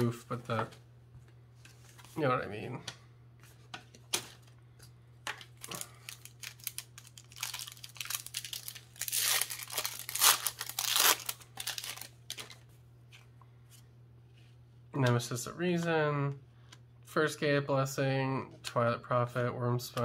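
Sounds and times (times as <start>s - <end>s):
packaging crinkling: 5.4s - 12.6s
card packaging tearing: 5.6s - 12.6s.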